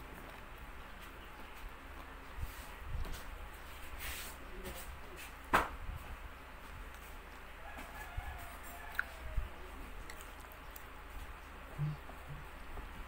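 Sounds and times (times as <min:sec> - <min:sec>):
chicken clucking and crowing: 0:07.5 - 0:09.8.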